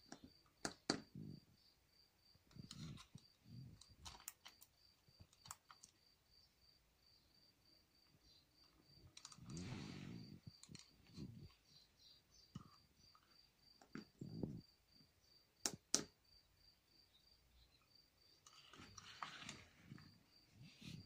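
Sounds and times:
plastic switch clicks and handling: 15.6s - 16.1s.

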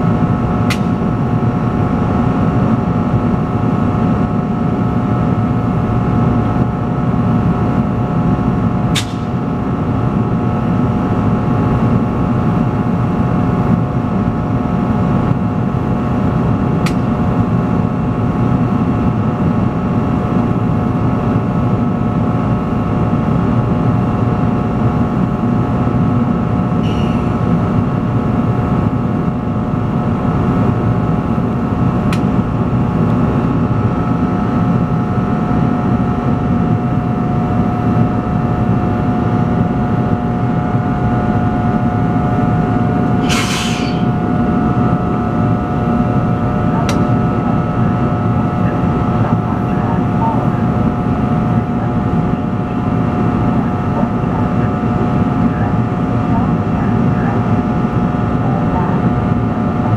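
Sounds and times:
electric locomotive rumble and whine: 0.0s - 59.9s
burst of hiss: 43.2s - 44.0s.

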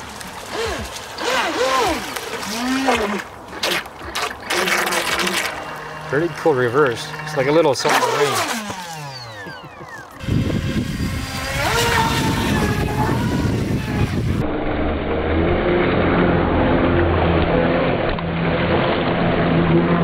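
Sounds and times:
water spray rushing: 0.0s - 8.8s
toy speedboat motor whine: 0.0s - 14.5s.

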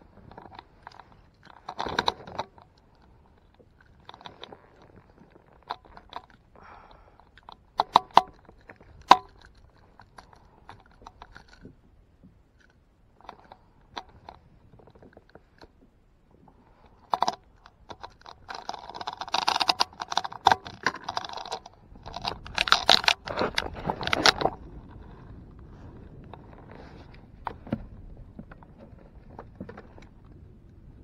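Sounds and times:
clicks and knocks of fishing gear: 0.0s - 15.9s, 16.5s - 30.8s
scraping and rustling: 7.2s - 30.4s.

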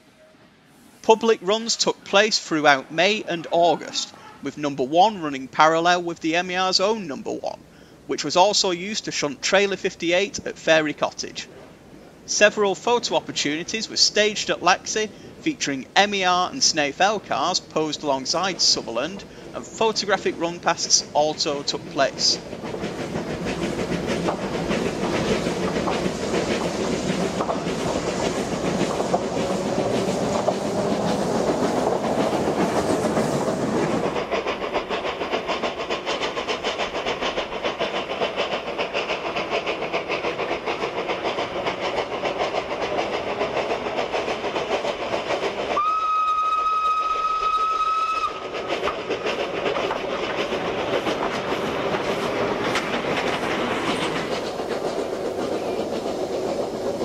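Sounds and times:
steam locomotive running: 0.8s - 57.0s
steam whistle: 45.8s - 48.4s
wheels clattering over rails: 47.5s - 57.0s.

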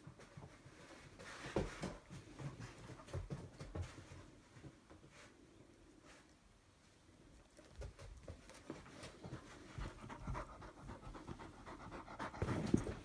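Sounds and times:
dog panting: 8.6s - 13.0s.

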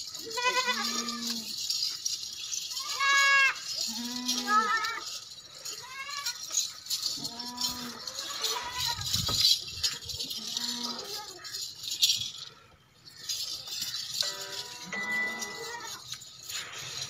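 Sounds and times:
goats bleating: 0.2s - 1.6s, 2.8s - 9.1s, 15.0s - 16.1s.

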